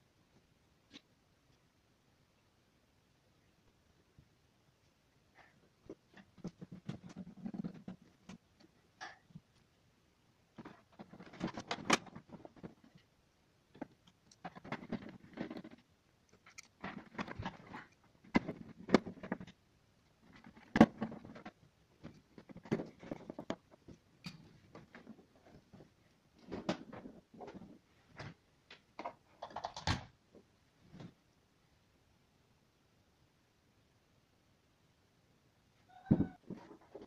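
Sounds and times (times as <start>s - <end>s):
plastic clicking and scraping: 10.6s - 13.1s, 13.7s - 19.6s, 20.2s - 25.8s.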